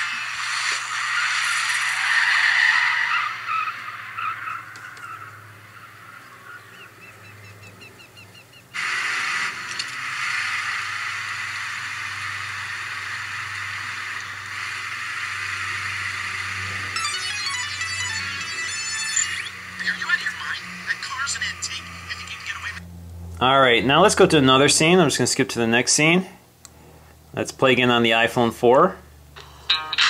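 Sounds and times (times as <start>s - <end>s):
tyres skidding: 0.0s - 7.9s
car engine through tinny speaker: 9.5s - 26.3s.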